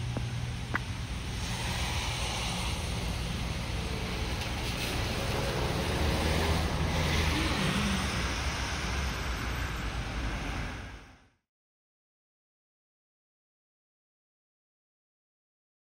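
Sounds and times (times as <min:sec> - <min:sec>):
low traffic rumble: 0:00.0 - 0:11.4
tyres hissing on wet road: 0:00.2 - 0:11.3
vehicle passing: 0:01.1 - 0:11.2.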